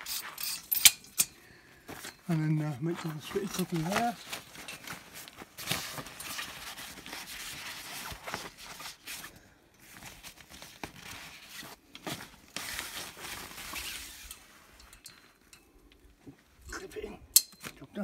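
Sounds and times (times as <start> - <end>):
canopy fabric rustling: 1.8 - 14.8.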